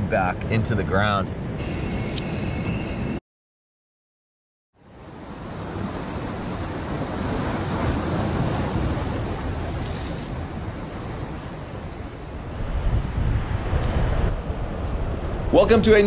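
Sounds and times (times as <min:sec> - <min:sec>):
wind: 0:00.0 - 0:03.2, 0:04.7 - 0:16.0
ocean surf breaking: 0:04.8 - 0:16.0.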